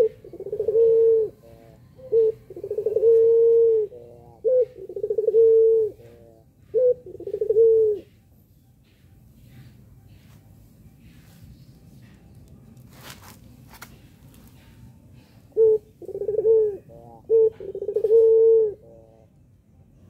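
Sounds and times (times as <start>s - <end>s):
dove cooing: 0.0s - 8.2s, 14.6s - 19.4s.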